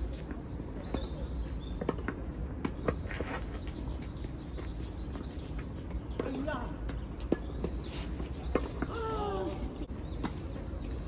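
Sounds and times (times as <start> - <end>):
small birds chirping: 0.0 - 11.0
tennis ball struck and bouncing: 5.9 - 8.9.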